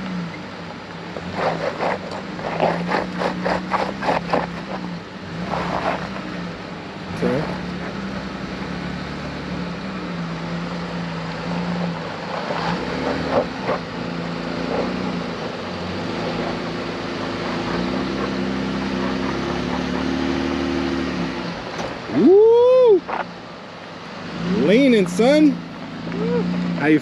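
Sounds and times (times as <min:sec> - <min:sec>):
engine running at low revs: 0:00.0 - 0:27.0
loud whoop: 0:22.1 - 0:23.1, 0:26.2 - 0:26.5.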